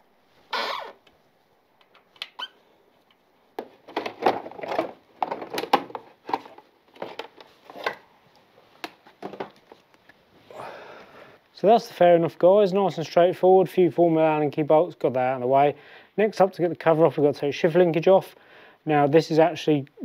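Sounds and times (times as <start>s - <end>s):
plastic panel clattering and rubbing: 3.7s - 8.0s.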